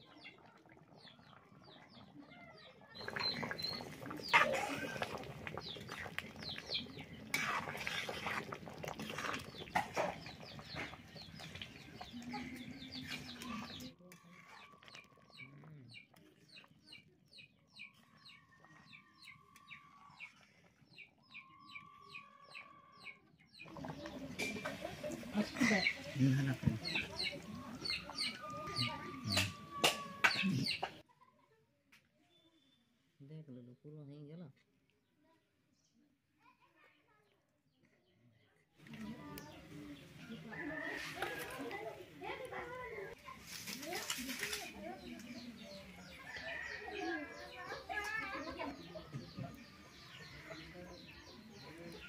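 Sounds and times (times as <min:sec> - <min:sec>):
chickens clucking: 0:03.0 - 0:16.0, 0:21.3 - 0:31.0
rustling noise: 0:43.2 - 0:45.3.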